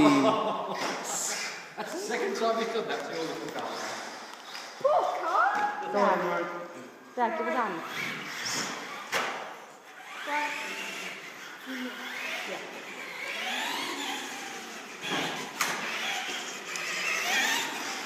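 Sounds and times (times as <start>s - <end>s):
electric motor whining: 9.9s - 18.0s.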